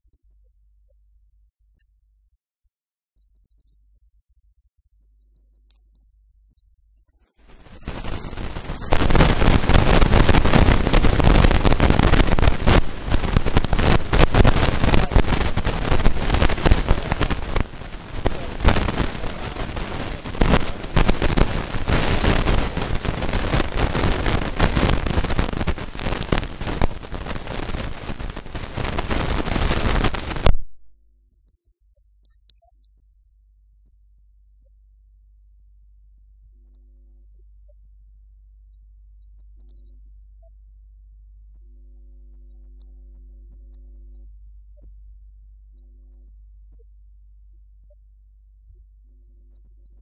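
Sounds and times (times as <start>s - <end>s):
loud harsh crackling noise: 7.4s - 30.7s, 33.7s - 50.0s.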